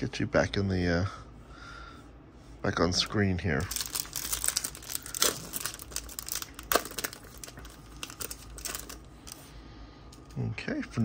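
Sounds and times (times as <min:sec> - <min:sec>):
foil wrapper crinkling: 0:03.6 - 0:09.5.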